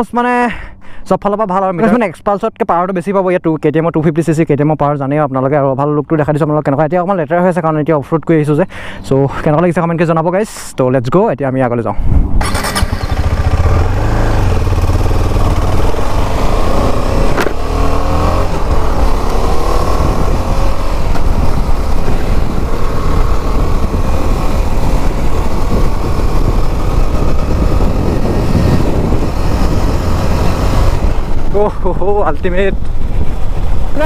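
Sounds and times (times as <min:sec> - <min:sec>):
wind rumble on microphone: 0:11.9 - 0:34.0
motorcycle engine accelerating: 0:12.2 - 0:34.0.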